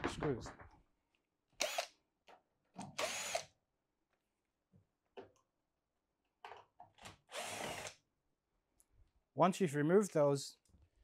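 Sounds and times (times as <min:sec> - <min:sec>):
power screwdriver whirring: 0:01.6 - 0:02.0, 0:02.9 - 0:03.5, 0:07.3 - 0:08.0.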